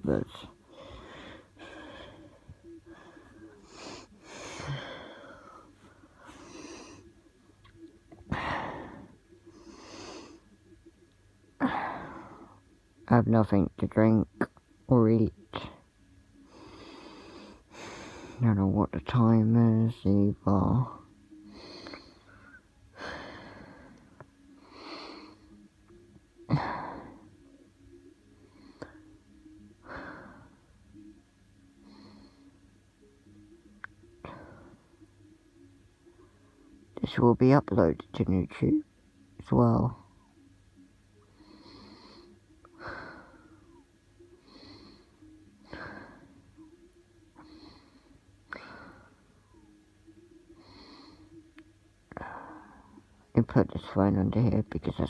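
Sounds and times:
person breathing heavily: 0.6s - 7.2s, 8.3s - 10.6s, 16.4s - 18.5s, 21.4s - 25.7s, 29.8s - 30.7s, 31.8s - 32.6s, 34.2s - 35.0s, 41.3s - 46.5s, 47.4s - 49.8s, 50.5s - 51.5s, 52.1s - 53.0s.

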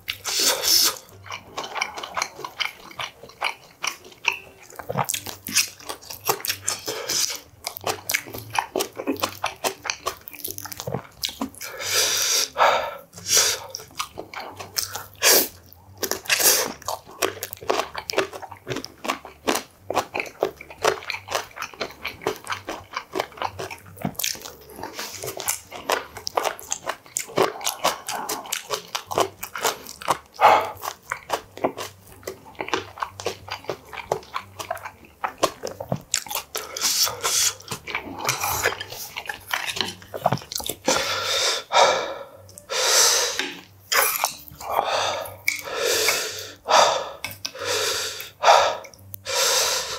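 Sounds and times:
man chewing food: 0.0s - 49.9s.

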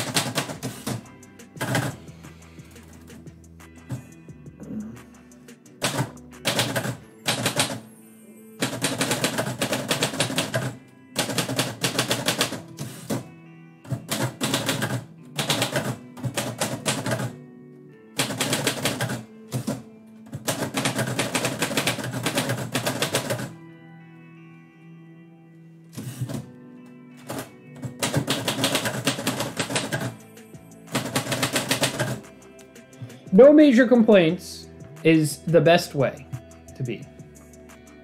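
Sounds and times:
typewriter key strikes: 0.0s - 1.0s, 5.8s - 7.8s, 27.3s - 30.1s
background music: 0.0s - 38.0s.

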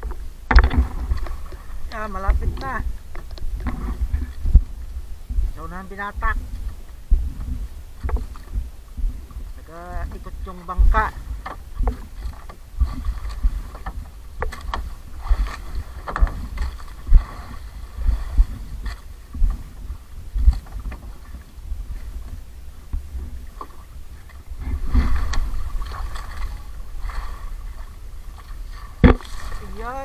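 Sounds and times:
sharp knocks and splashes: 0.0s - 21.5s, 22.9s - 30.0s
waves slapping boat hull: 0.0s - 30.0s
wind buffeting microphone: 0.0s - 30.0s.

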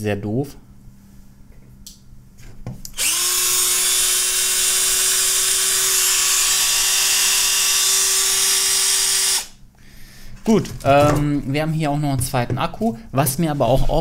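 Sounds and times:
cordless drill whining: 2.9s - 9.6s.

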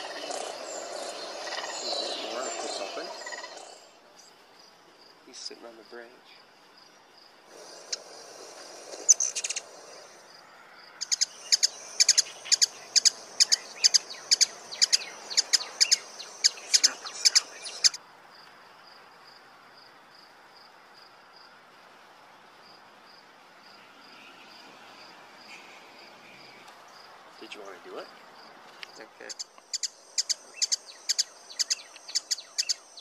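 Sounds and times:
hummingbird chirps playback: 0.0s - 4.3s, 7.5s - 10.4s, 11.0s - 18.0s, 29.2s - 33.0s
crickets chirping: 0.0s - 33.0s.

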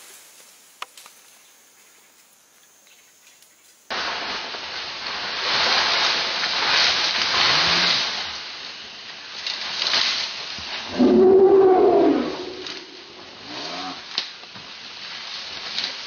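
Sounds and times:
elephant cry: 10.9s - 14.0s.

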